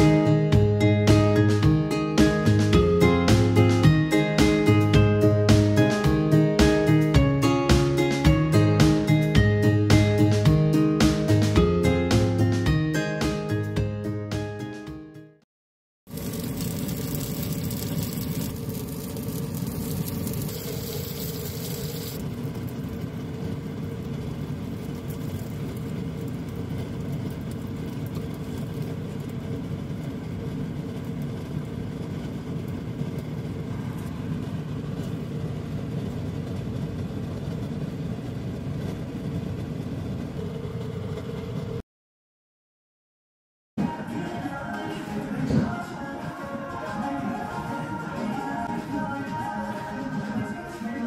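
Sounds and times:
egg sizzling in a pan: 0:16.1 - 0:32.9
kitchen fan whirring: 0:16.1 - 0:41.8.

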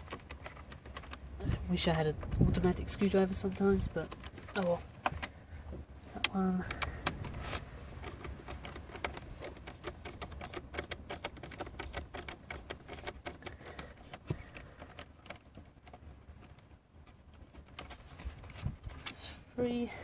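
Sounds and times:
screwdriver clicking and scraping: 0:06.2 - 0:19.2.

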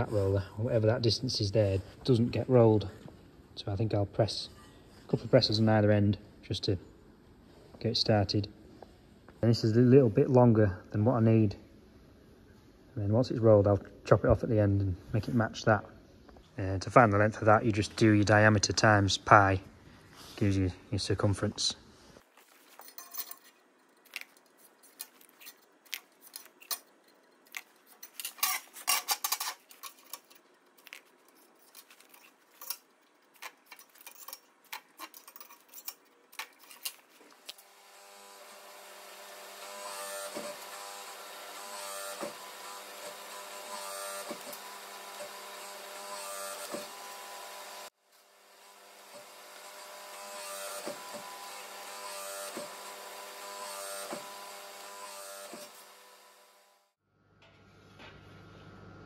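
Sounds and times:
scraping and tapping on steel: 0:22.7 - 0:37.2.

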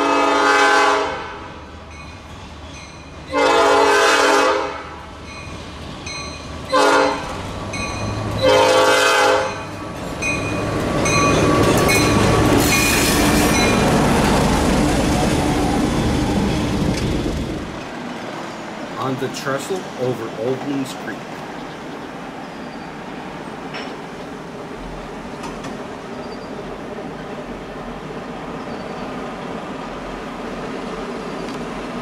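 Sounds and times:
locomotive horn blasts: 0:00.0 - 0:01.5, 0:03.3 - 0:05.0, 0:06.7 - 0:07.4, 0:08.4 - 0:09.7
locomotive and wheels rumbling: 0:00.0 - 0:32.0.

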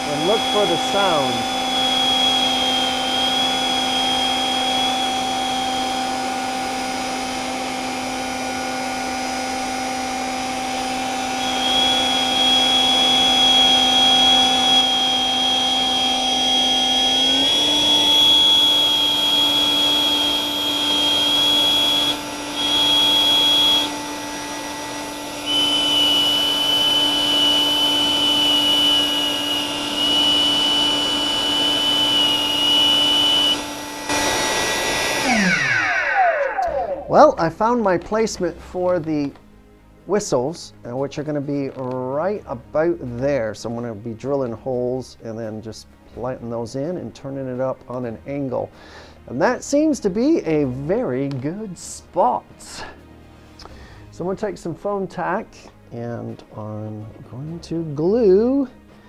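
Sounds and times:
high steady whistle: 0:00.0 - 0:37.4
electric ducted fan running: 0:00.0 - 0:39.4.

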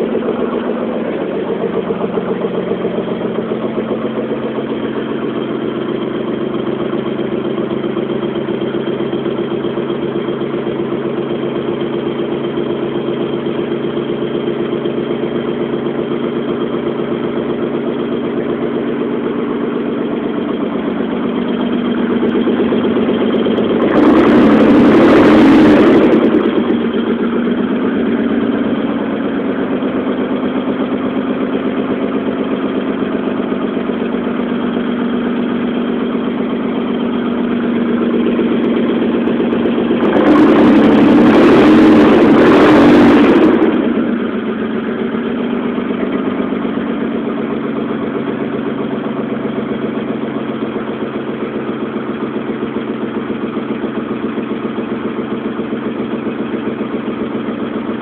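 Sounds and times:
car engine idling: 0:00.0 - 0:58.0.

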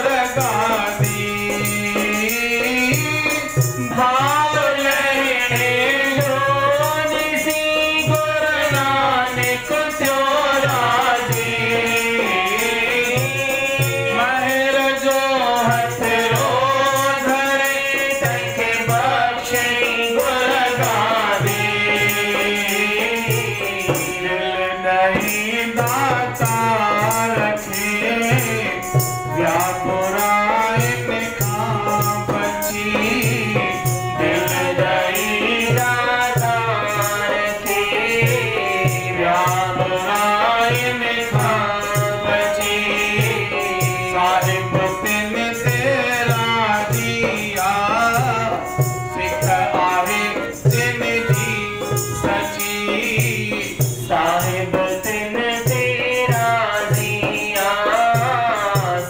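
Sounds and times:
man singing devotional song: 0:00.0 - 0:59.0.

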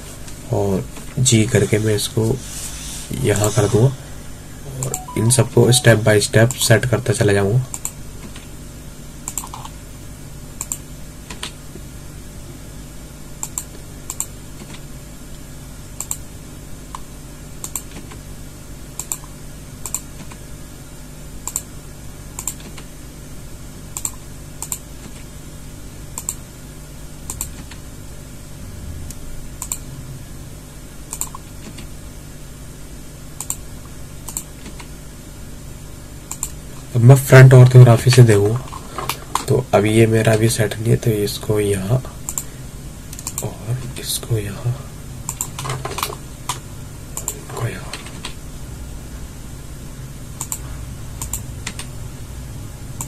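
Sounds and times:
steady low hum: 0:00.0 - 0:53.0
keyboard and mouse clicking: 0:07.7 - 0:08.4, 0:09.3 - 0:09.7, 0:10.6 - 0:11.6, 0:13.4 - 0:14.8, 0:16.0 - 0:16.2, 0:17.6 - 0:18.2, 0:19.0 - 0:20.4, 0:21.4 - 0:21.7, 0:22.4 - 0:22.9, 0:24.0 - 0:25.2, 0:26.2 - 0:26.4, 0:27.3 - 0:27.8, 0:29.6 - 0:29.8, 0:31.1 - 0:31.9, 0:33.4 - 0:33.6, 0:34.3 - 0:34.9, 0:36.3 - 0:36.6, 0:43.1 - 0:43.5, 0:45.3 - 0:46.6, 0:50.4 - 0:50.6, 0:51.2 - 0:51.9.

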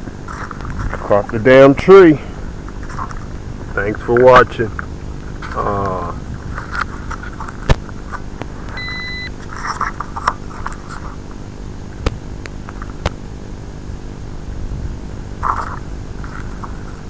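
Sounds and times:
low electrical hum: 0:00.0 - 0:17.0
short high beep: 0:08.8 - 0:09.3.

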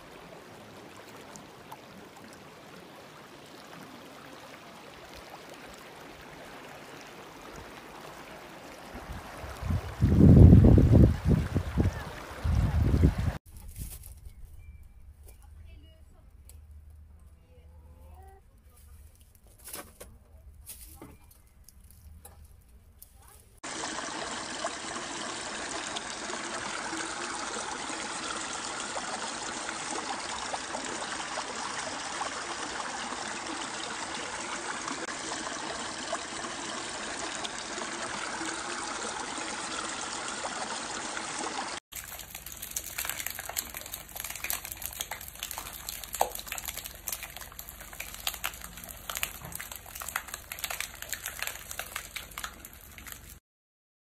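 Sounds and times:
stream water flowing: 0:00.0 - 0:13.4, 0:23.6 - 0:53.4.

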